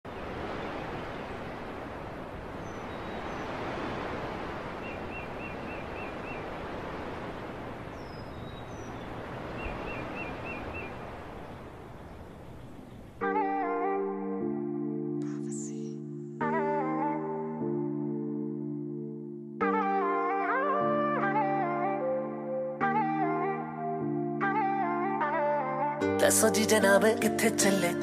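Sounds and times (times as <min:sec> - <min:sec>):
birds calling: 0:00.1 - 0:13.2
steady rushing noise: 0:00.1 - 0:13.2.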